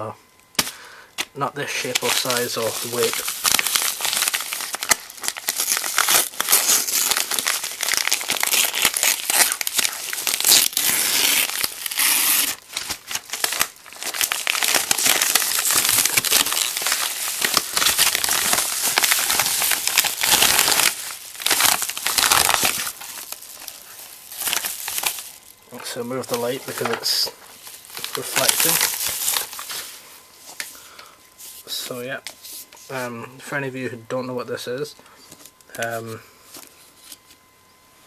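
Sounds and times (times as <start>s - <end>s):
paper crinkling and rustling: 1.2s - 30.8s
paper mailer being torn open: 1.6s - 29.8s.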